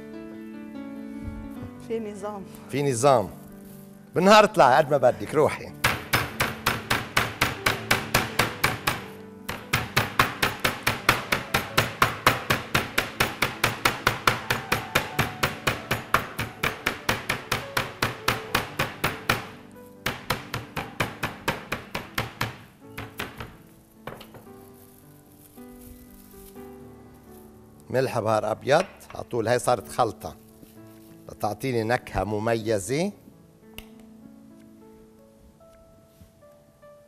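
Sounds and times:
rolling pin pounding meat: 5.8 - 24.5.

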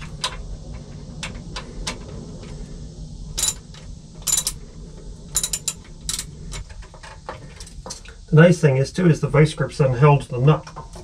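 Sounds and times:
low steady hum: 0.0 - 11.0
ratchet wrench clicking: 3.4 - 3.6, 4.3 - 4.6, 5.4 - 6.3.

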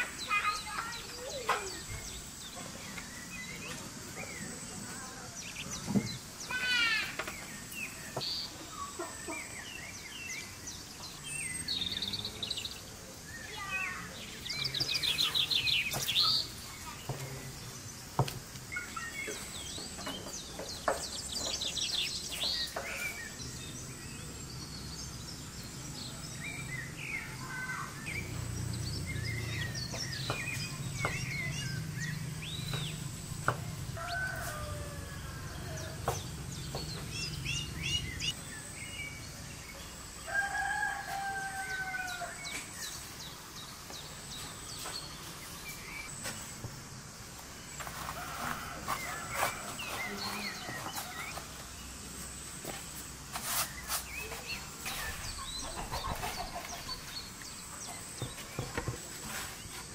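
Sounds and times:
small birds chirping: 0.0 - 59.9
rooster crowing: 33.7 - 36.0, 40.2 - 42.5.

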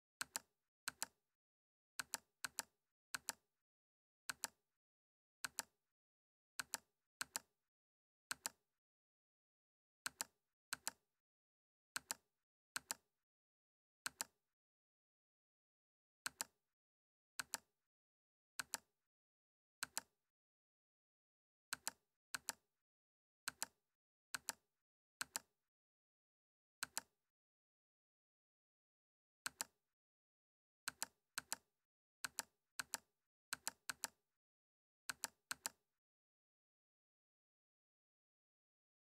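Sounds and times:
computer mouse clicks: 0.2 - 1.2, 2.0 - 3.4, 4.3 - 4.6, 5.4 - 5.7, 6.6 - 7.5, 8.3 - 8.6, 10.1 - 11.0, 12.0 - 12.2, 12.8 - 13.0, 14.1 - 14.3, 16.3 - 16.5, 17.4 - 17.7, 18.6 - 18.9, 19.8 - 20.1, 21.7 - 22.6, 23.5 - 23.8, 24.4 - 24.6, 25.2 - 25.5, 26.8 - 27.1, 29.5 - 29.8, 30.9 - 31.6, 32.2 - 34.2, 35.1 - 35.8.

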